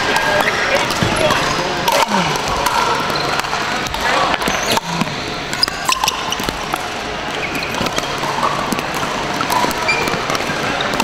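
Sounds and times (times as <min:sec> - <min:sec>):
paddles striking plastic balls: 0:00.0 - 0:11.0
sneakers squeaking on hardwood: 0:00.9 - 0:01.6, 0:04.4 - 0:06.6, 0:07.3 - 0:08.1, 0:09.8 - 0:10.3.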